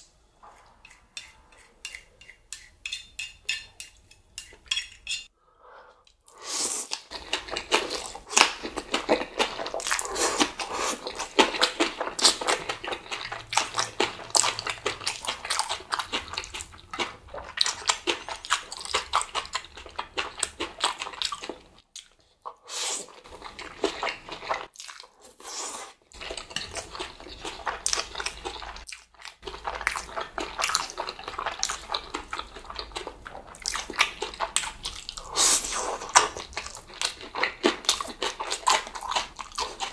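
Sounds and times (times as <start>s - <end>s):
noodles slurped and chewed: 6.2s - 39.9s.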